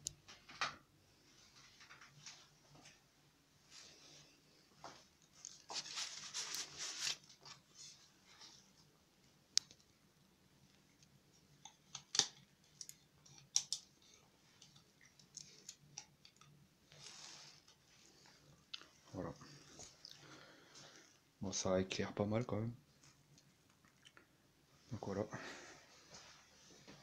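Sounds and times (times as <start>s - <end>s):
handling rustle: 4.9s - 8.7s.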